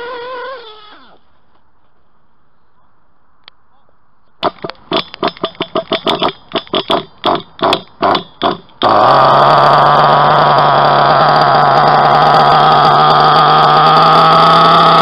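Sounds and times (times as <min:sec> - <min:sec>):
model engine cranking: 0:04.4 - 0:15.0
model engine idling: 0:04.4 - 0:15.0.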